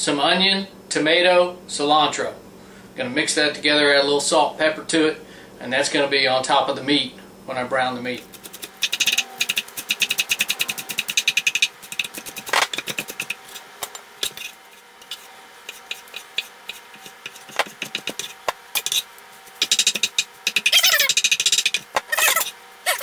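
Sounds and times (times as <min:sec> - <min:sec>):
knife chopping on wooden board: 0:08.2 - 0:14.4, 0:15.1 - 0:19.0.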